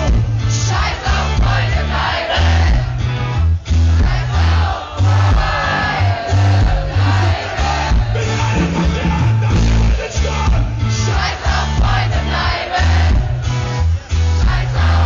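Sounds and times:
live pop-rock band: 0.0s - 15.0s
person singing: 5.0s - 11.4s.

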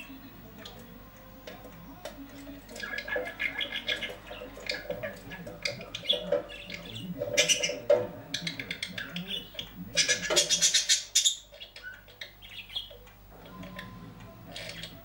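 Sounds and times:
budgerigar chattering: 2.7s - 13.0s.

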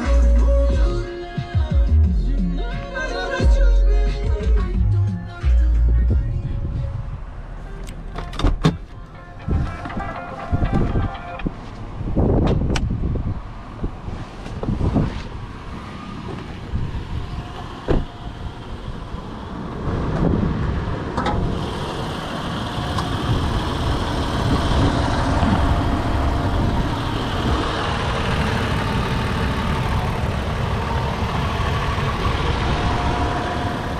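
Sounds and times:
car engine idling: 21.4s - 33.9s.

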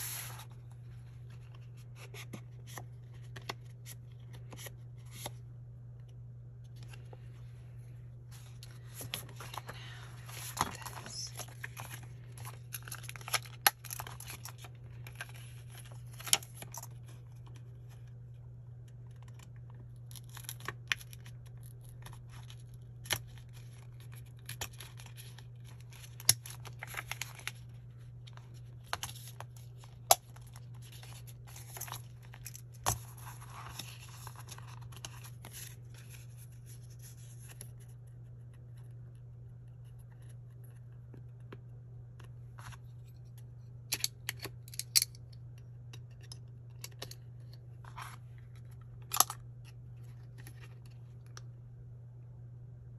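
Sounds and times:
plastic and paper rustling: 8.4s - 18.0s.

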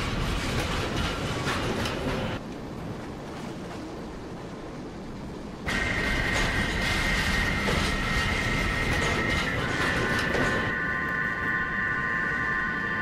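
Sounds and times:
constant high whine: 3.8s - 13.0s.

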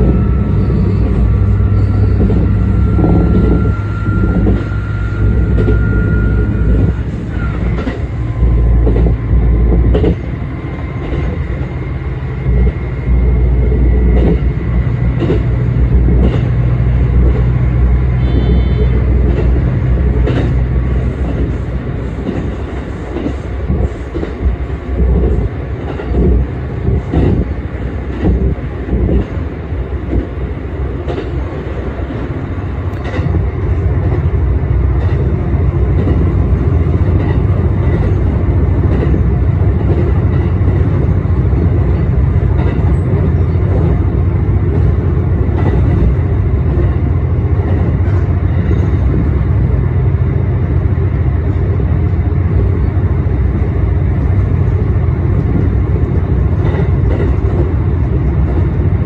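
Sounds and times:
train low rumble: 0.0s - 59.0s
train wheels knocking on rail joints: 6.6s - 11.8s, 12.4s - 29.4s, 33.0s - 49.4s, 55.2s - 59.0s.

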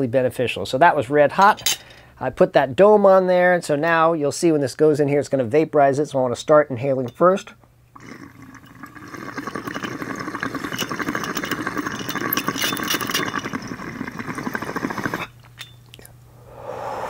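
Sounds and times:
water pipe bubbling: 7.9s - 16.0s.

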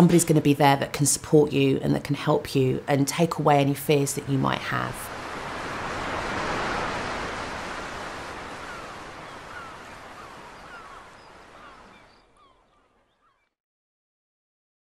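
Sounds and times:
sea surf washing onto beach: 5.0s - 12.1s
bird chirps: 8.6s - 13.5s.

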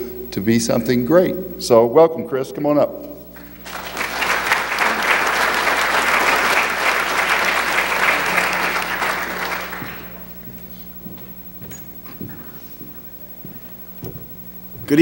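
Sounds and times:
audience applauding: 3.5s - 10.3s.

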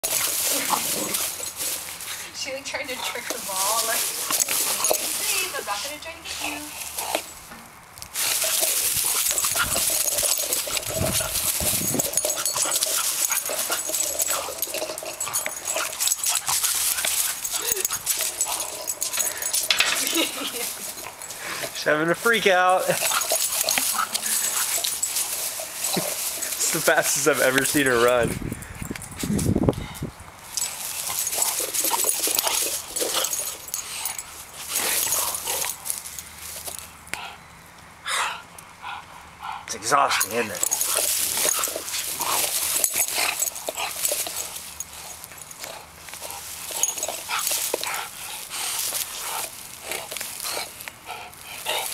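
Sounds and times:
rustling in dry grass: 0.0s - 37.1s, 40.2s - 51.9s
dog making excited noises: 8.4s - 19.4s.

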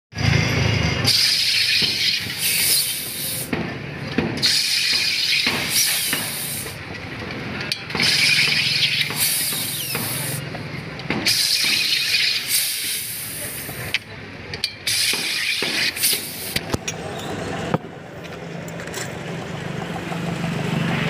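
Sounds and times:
gas hissing into bottle: 1.1s - 3.5s, 4.4s - 6.8s, 8.0s - 10.4s, 11.2s - 14.0s, 14.9s - 16.6s.

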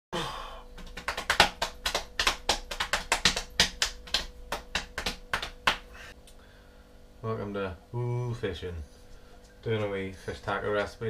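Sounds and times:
faint steady hum: 0.2s - 11.0s
hands slapping a belly: 0.7s - 6.0s.

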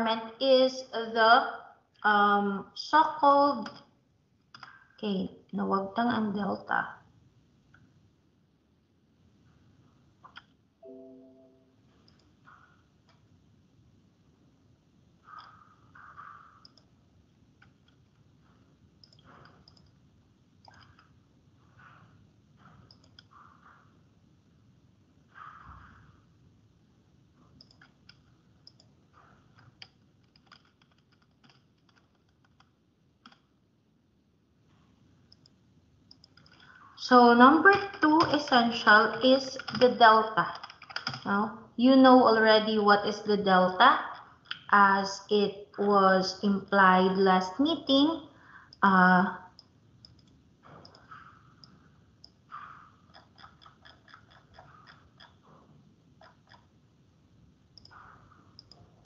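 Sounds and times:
computer keyboard and mouse clicking: 4.5s - 4.8s, 15.3s - 16.9s, 17.6s - 18.2s, 19.0s - 20.0s, 20.6s - 21.1s, 22.8s - 23.3s, 27.5s - 33.5s, 35.3s - 36.8s, 37.7s - 38.8s, 39.4s - 41.4s, 49.6s - 52.4s, 53.1s - 55.4s, 56.2s - 56.7s, 57.8s - 58.9s
keyboard keystrokes: 29.6s - 33.4s, 39.6s - 41.3s.

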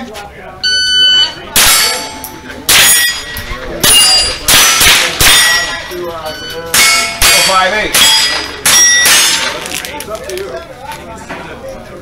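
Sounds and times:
steel target plate ringing: 0.9s - 9.6s.

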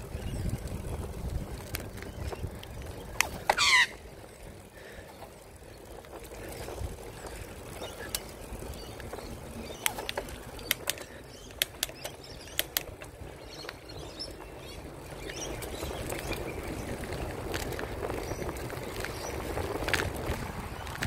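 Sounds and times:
wind buffeting microphone: 0.0s - 5.0s, 5.6s - 21.0s
steady rumble: 0.0s - 21.0s
sharp clicks: 9.8s - 13.0s.

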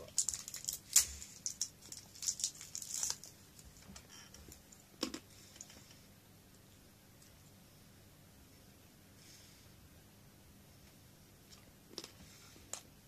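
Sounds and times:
wrapper crinkling: 0.0s - 3.9s.

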